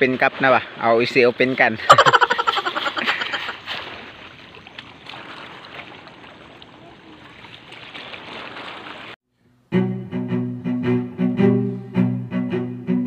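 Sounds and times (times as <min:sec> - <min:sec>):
water sloshing and splashing: 0:00.0 - 0:09.2
music with low bowed strings: 0:09.7 - 0:13.0.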